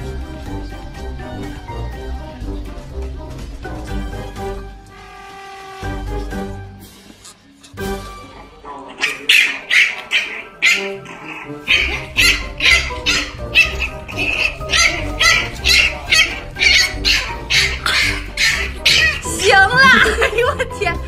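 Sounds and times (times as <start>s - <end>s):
puppy vocalizing: 8.4s - 20.2s.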